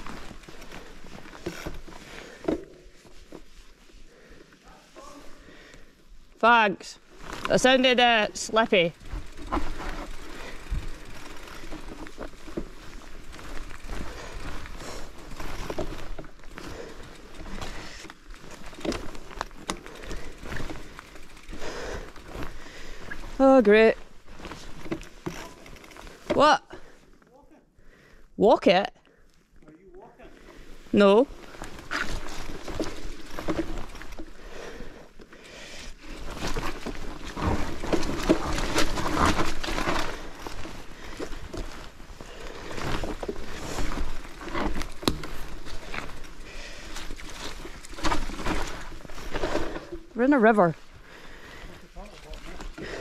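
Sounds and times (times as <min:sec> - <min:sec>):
bike tyre and trail noise: 0:00.0 - 0:53.0
bike knocks and rattles: 0:09.0 - 0:23.2, 0:24.4 - 0:26.5, 0:31.6 - 0:34.4, 0:36.0 - 0:50.1.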